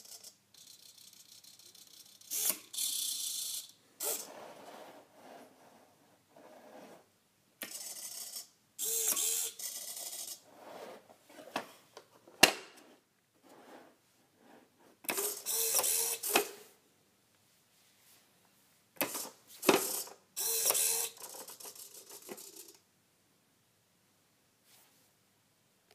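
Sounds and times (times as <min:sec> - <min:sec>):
servo motors whirring: 0:08.8 - 0:10.3, 0:15.2 - 0:16.4, 0:20.4 - 0:21.2.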